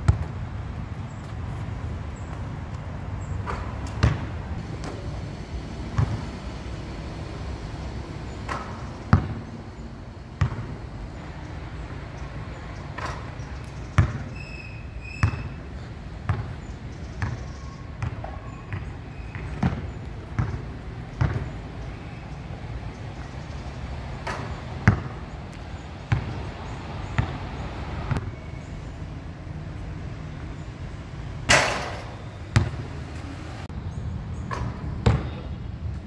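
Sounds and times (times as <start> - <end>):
basketball bouncing on court: 0.0 - 0.4, 3.4 - 5.0, 5.9 - 6.4, 8.5 - 9.6, 10.3 - 10.9, 13.0 - 14.4, 15.0 - 21.6, 24.2 - 27.6, 31.5 - 32.9, 34.5 - 35.5.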